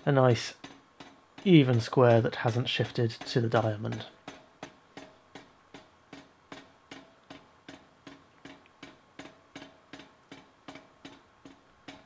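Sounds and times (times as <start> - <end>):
power hammer striking hot steel: 1.4 - 5.5.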